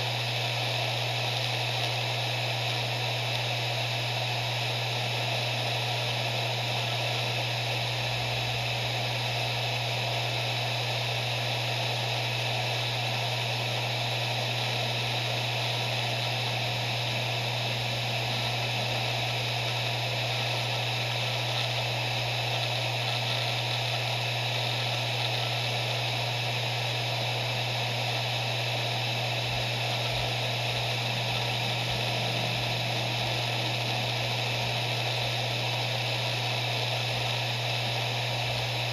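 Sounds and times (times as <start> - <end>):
hard drive spinning: 0.0 - 38.9.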